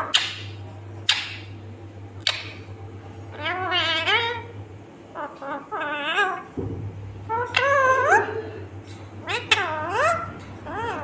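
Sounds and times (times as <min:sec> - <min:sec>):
parakeet warbling call: 0:03.3 - 0:06.5, 0:07.2 - 0:08.4, 0:09.2 - 0:11.0.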